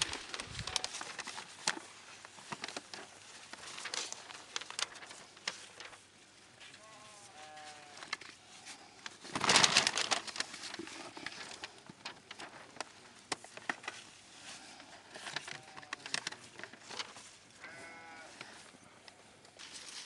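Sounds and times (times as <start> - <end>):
paper rustling: 0.0 - 18.0, 19.6 - 20.0
sheep or goats bleating: 6.8 - 8.1, 17.6 - 18.5.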